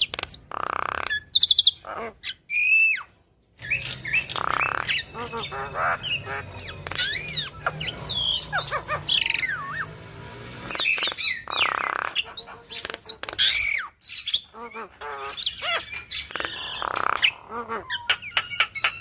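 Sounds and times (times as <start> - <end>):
myna chattering song: 3.6 - 19.0.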